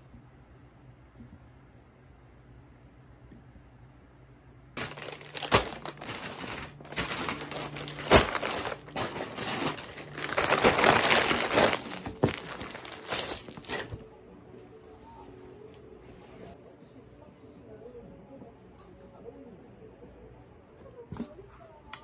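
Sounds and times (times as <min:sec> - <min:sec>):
plastic mailer bags crinkling: 0:04.8 - 0:14.0
sharp plastic crackles: 0:04.8 - 0:14.0.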